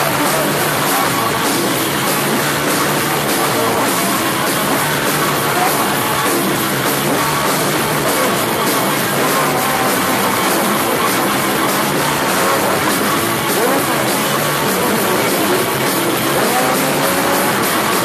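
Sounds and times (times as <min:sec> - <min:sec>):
drum kit: 0:00.0 - 0:18.0
electric guitars: 0:00.0 - 0:18.0
man singing into microphone: 0:16.3 - 0:18.0.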